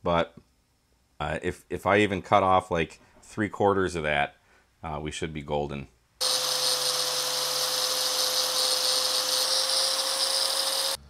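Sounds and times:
angle grinder grinding steel: 6.2 - 11.0.

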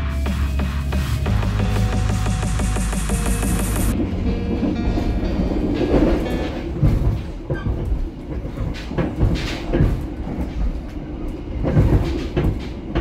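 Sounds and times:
train carriage low rumble: 0.0 - 13.0
wheels knocking and rattling: 3.2 - 13.0.

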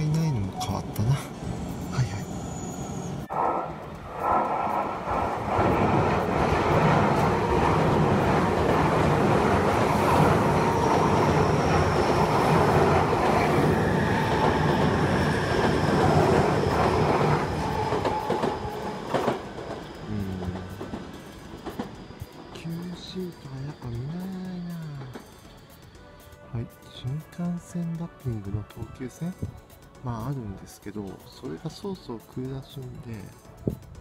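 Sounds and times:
thin high train whine: 0.0 - 27.0.

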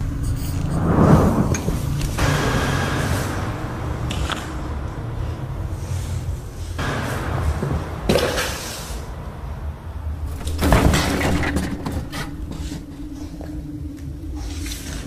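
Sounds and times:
cats scrambling on tile floor: 10.3 - 13.5.

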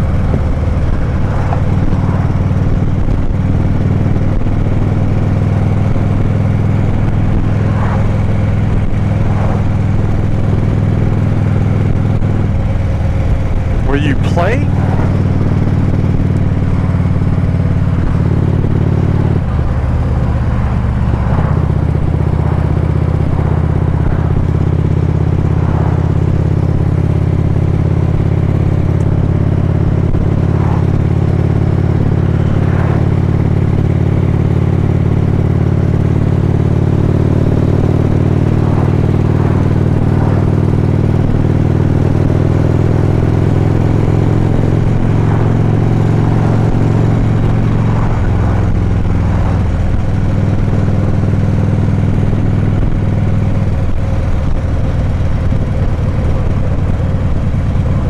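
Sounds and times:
motorcycle engine cruising: 0.0 - 58.0
road and wind noise: 0.0 - 58.0.

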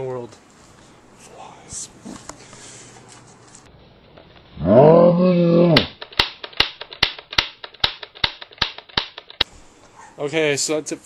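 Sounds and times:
man growling yell: 4.6 - 5.9
sharp smacks: 5.7 - 9.5.

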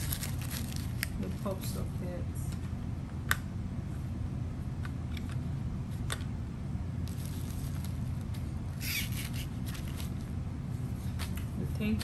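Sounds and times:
packaging rustle: 0.0 - 1.1, 8.8 - 10.3
steady low hum: 0.0 - 12.0.

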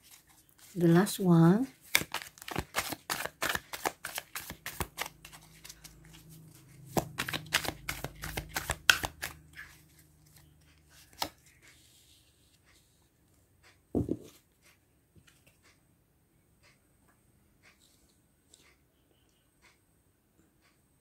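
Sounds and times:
cards being shuffled: 1.8 - 12.0.

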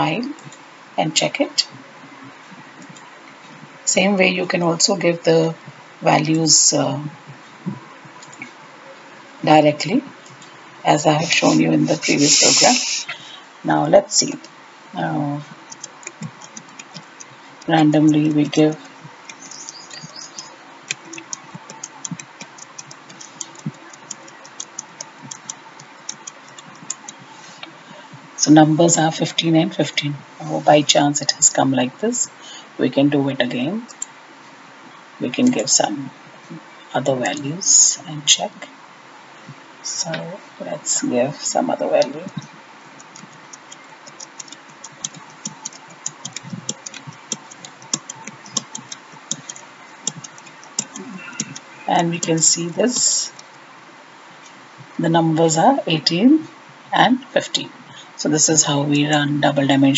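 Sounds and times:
computer keyboard keys clicking: 15.7 - 27.3, 42.0 - 53.5
keyboard key clicks: 43.0 - 51.6.

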